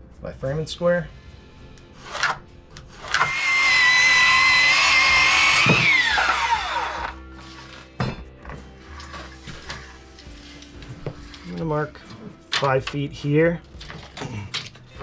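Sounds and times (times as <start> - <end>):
circular saw cutting board: 2.0 - 7.9.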